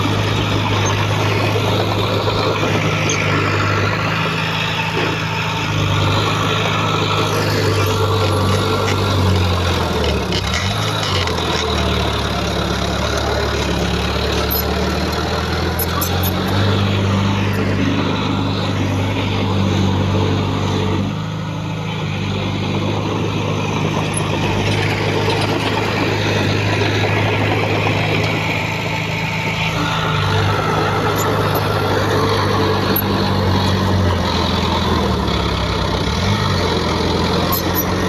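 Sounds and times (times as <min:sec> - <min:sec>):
heavy diesel engine running: 0:00.0 - 0:38.0.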